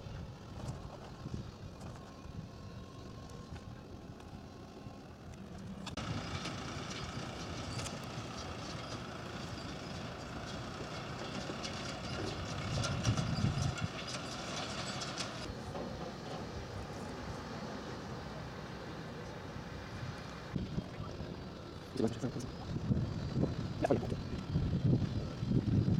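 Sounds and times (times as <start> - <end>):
tractor engine running: 0.0 - 25.9
wagon clattering and rattling: 5.6 - 17.0.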